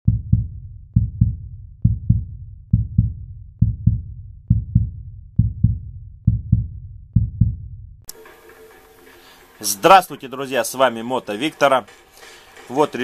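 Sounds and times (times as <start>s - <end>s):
heartbeat thumps: 0.1s - 8.1s.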